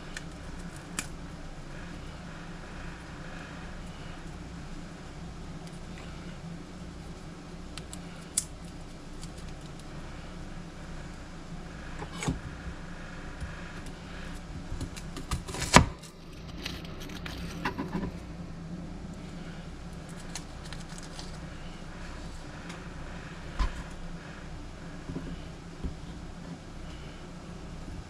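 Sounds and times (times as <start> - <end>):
steady low hum: 0.0 - 28.0
garlic being peeled by hand: 13.4 - 18.2, 19.7 - 21.7.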